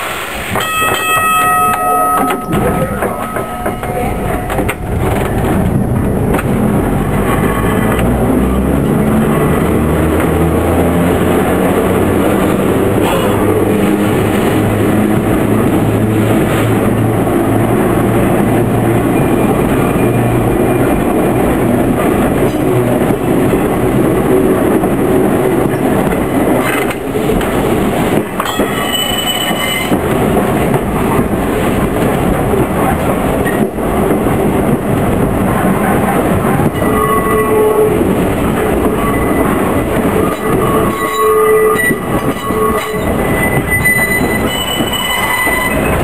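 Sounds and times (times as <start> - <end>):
railway car rumbling on track: 0.0 - 46.0
wheels knocking over rail joints: 25.6 - 32.8
high wheel squeal: 28.5 - 30.0, 36.7 - 38.1, 38.9 - 46.0.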